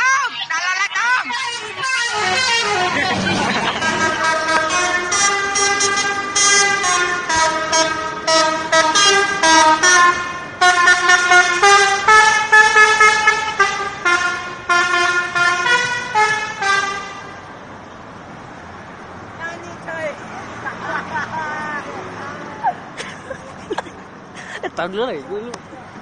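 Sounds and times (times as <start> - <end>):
passing traffic: 0.0 - 26.0
musical air horn tune: 1.3 - 17.3.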